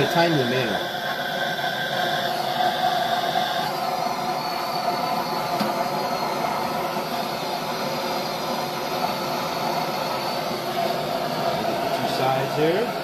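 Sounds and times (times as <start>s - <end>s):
thin high whistle: 0.0s - 12.1s
gas torch hissing roar: 0.0s - 13.0s.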